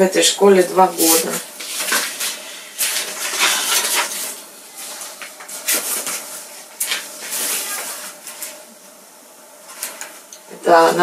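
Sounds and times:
paper rustling and shuffling: 0:00.9 - 0:08.8, 0:09.6 - 0:10.3.

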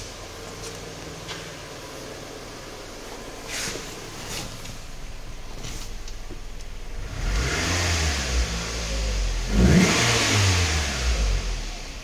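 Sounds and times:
car engine revving: 0:06.7 - 0:12.0.

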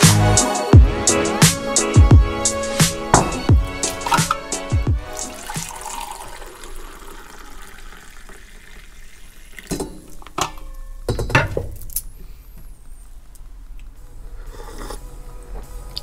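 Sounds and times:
jug and mug knocking: 0:03.1 - 0:04.5
coffee pouring into a mug: 0:05.0 - 0:09.8.

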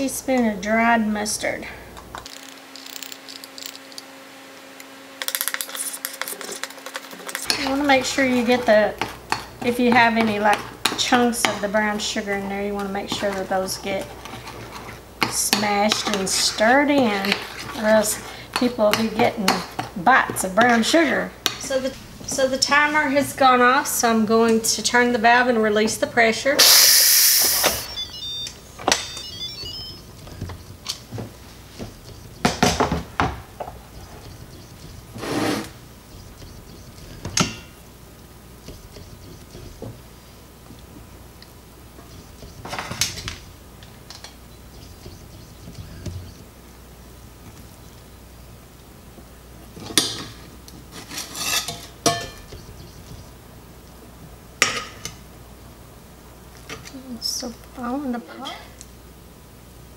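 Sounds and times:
pressure cooker beeping tune: 0:26.6 - 0:30.1
metal clinking on skillet: 0:51.4 - 0:52.4.

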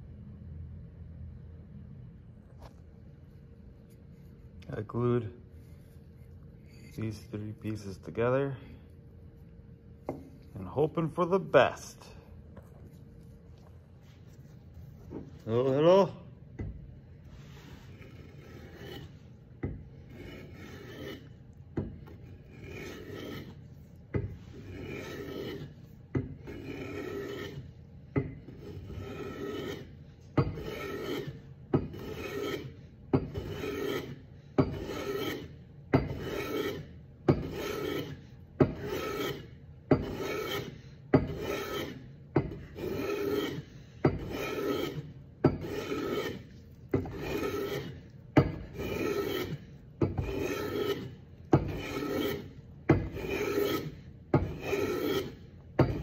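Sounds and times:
hand plane strokes on wood: 0:17.3 - 0:27.8, 0:28.4 - 0:56.0.

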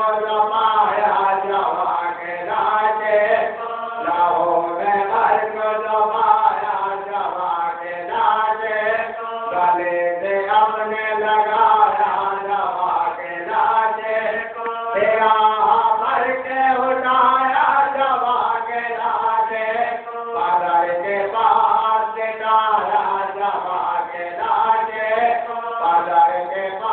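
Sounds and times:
men chanting together: 0:00.0 - 0:26.9.

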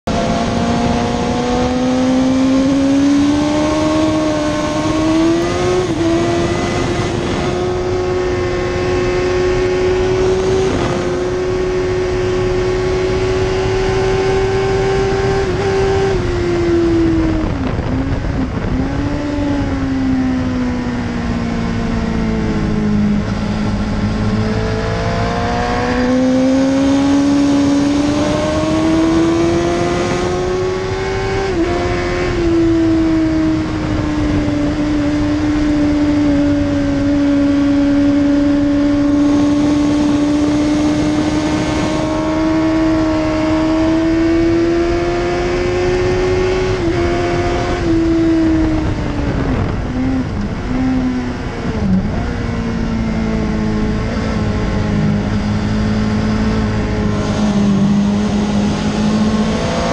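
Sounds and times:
motorcycle engine at full throttle: 0:00.0 - 0:59.9
wind rush: 0:00.0 - 0:59.9.

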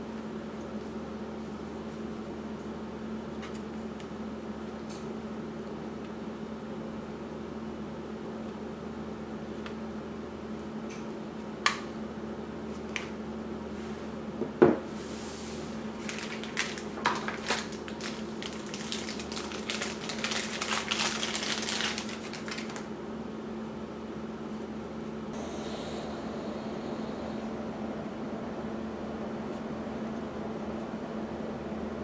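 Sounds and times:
plastic crinkling and rustling: 0:15.9 - 0:22.9.

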